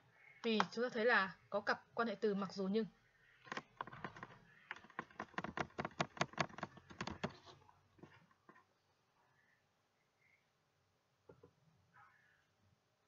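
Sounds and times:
keyboard typing: 3.5s - 7.5s.

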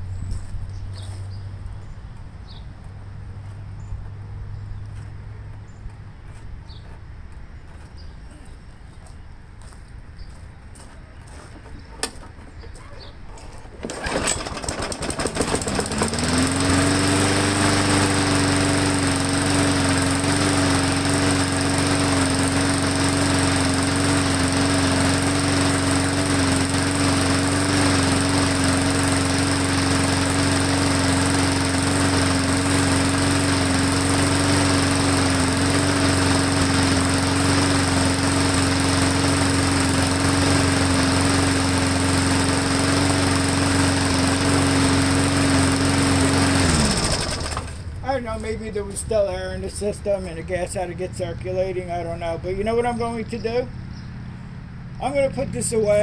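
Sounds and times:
lawn mower engine running: 12.0s - 56.0s.

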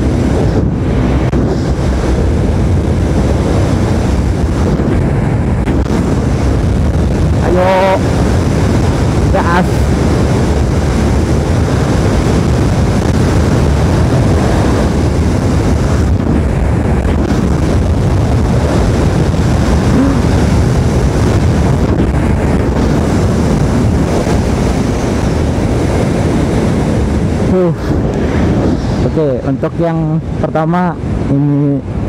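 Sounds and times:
wind rushing over microphone: 0.0s - 32.0s.

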